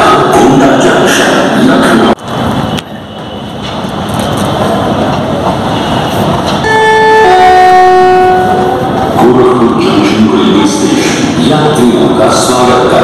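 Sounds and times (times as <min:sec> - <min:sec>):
railway station din: 0:00.0 - 0:13.0
train horn: 0:06.6 - 0:09.0.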